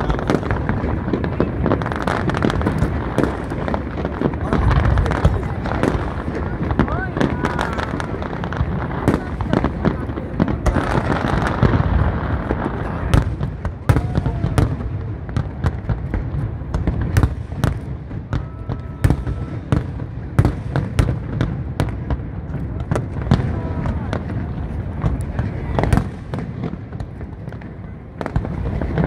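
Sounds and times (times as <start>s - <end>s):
fireworks bursting with sharp bangs: 0.0s - 29.0s
fireworks crackling: 0.0s - 29.0s.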